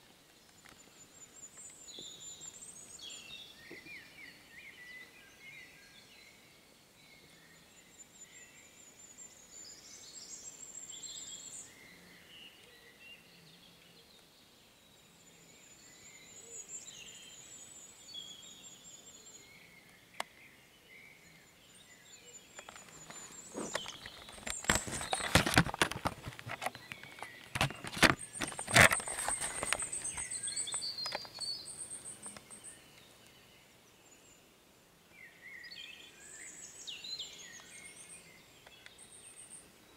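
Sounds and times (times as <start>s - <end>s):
birds singing: 0.0s - 39.9s
knocks and rustles at microphone: 22.6s - 31.4s.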